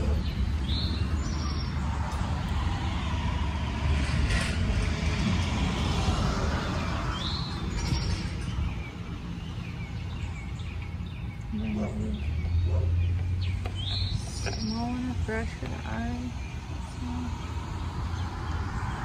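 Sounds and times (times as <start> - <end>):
bird chirping: 0.0 - 2.6, 6.6 - 19.0
car passing: 0.0 - 19.0.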